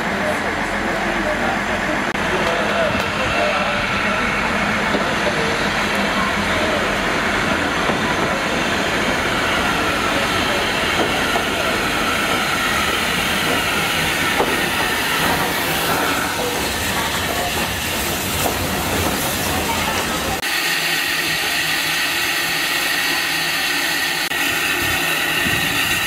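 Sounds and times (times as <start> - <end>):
steam hissing: 2.8 - 26.0
locomotive wheels clattering on rails: 4.4 - 20.4.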